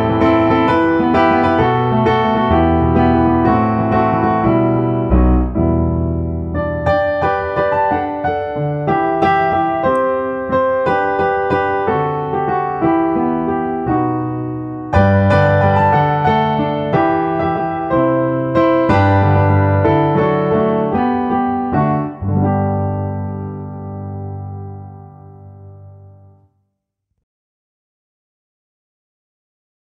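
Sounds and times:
piano music: 0.0s - 26.5s.

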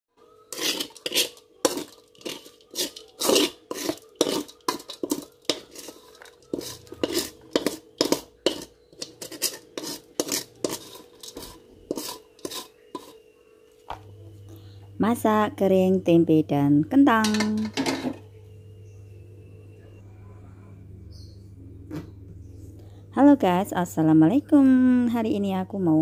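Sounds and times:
metal spatula scraping a wok: 0.4s - 13.2s.

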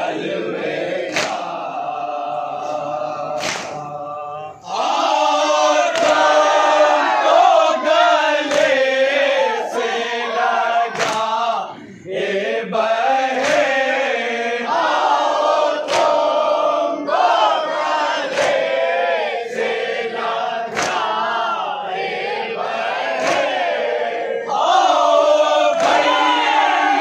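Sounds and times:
men chanting in unison: 0.0s - 27.0s
hands slapping chests: 1.1s - 1.6s, 3.4s - 3.9s, 5.9s - 6.4s, 8.4s - 8.8s, 10.9s - 11.4s, 13.3s - 13.8s, 15.8s - 16.3s, 18.3s - 18.7s, 20.7s - 21.2s, 23.2s - 23.6s, 25.8s - 26.3s.

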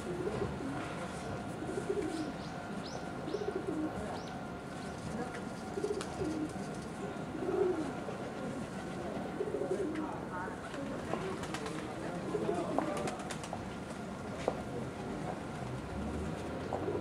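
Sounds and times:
pigeons cooing: 0.0s - 0.9s, 1.5s - 4.2s, 5.7s - 10.1s, 12.2s - 13.4s, 16.7s - 17.0s.

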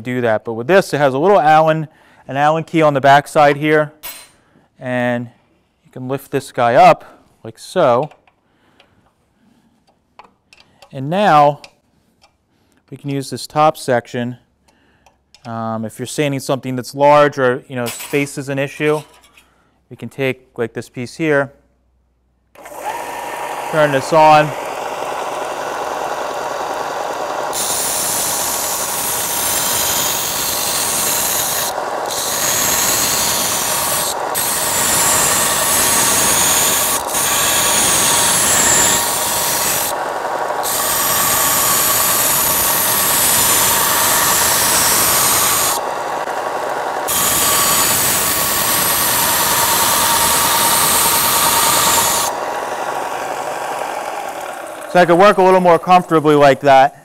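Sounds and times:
sander motor hum: 22.6s - 55.7s
belt sander grinding metal: 22.6s - 56.0s.

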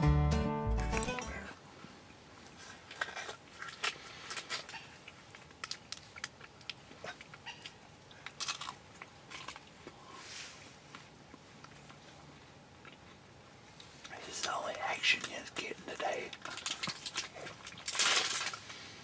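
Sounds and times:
person chewing: 2.5s - 10.2s, 10.9s - 13.3s
wrapper crinkling: 16.3s - 18.8s.

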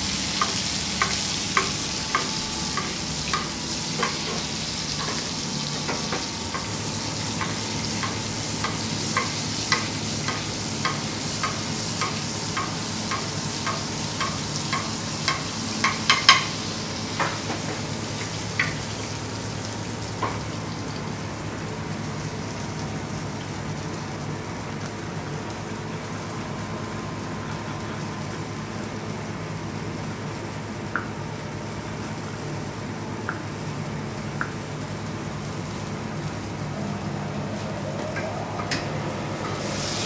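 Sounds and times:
butter sizzling in a pan: 0.0s - 30.8s
low hum: 35.5s - 40.0s.

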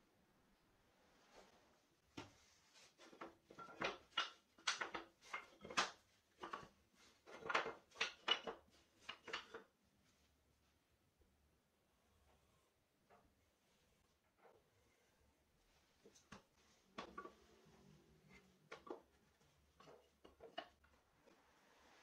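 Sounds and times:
wood and tools scraping and knocking: 1.4s - 9.8s, 15.9s - 22.0s.

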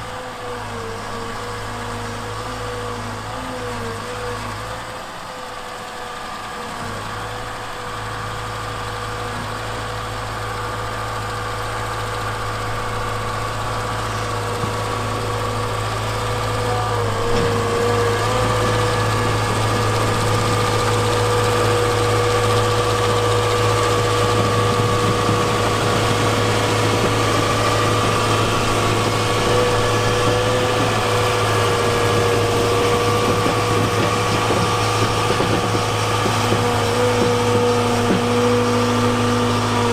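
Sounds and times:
diesel engine hum: 0.0s - 39.9s
steady whine: 18.2s - 39.9s.

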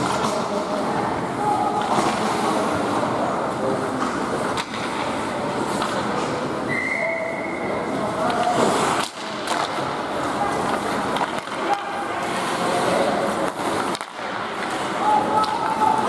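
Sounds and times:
distant crowd voices: 0.0s - 16.0s
skates scraping ice: 0.0s - 16.0s
stick hitting puck: 4.0s - 5.1s, 8.2s - 12.6s, 13.4s - 16.0s.

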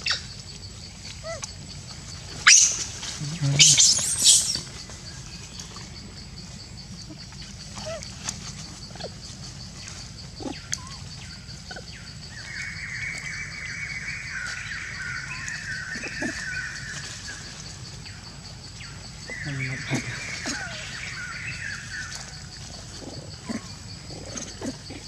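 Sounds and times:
monkey squealing: 2.4s - 2.8s, 3.5s - 4.7s, 19.7s - 20.8s.

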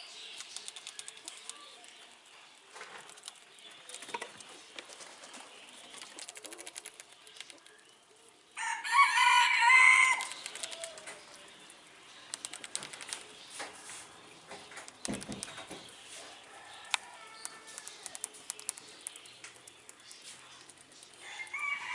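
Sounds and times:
faint clicking and ticking: 0.3s - 5.0s, 10.2s - 13.4s, 16.8s - 21.6s
rooster crowing: 8.6s - 10.3s, 16.4s - 18.0s, 21.2s - 21.9s.

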